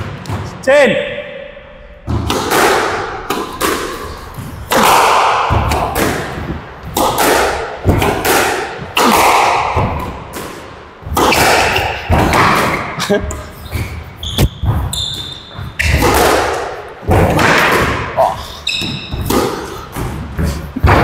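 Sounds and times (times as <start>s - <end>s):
squash ball hitting rackets and walls: 0.0s - 0.6s, 2.0s - 21.0s.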